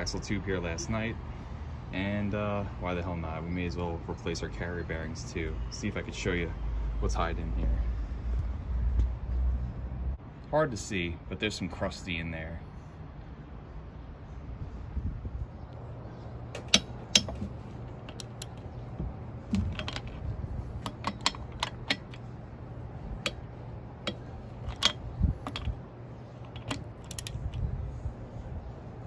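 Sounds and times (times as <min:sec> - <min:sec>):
low steady hum: 0:12.4 - 0:29.0
ratchet wrench clicking: 0:18.1 - 0:18.6, 0:20.8 - 0:22.3, 0:24.1 - 0:25.8, 0:26.4 - 0:27.6.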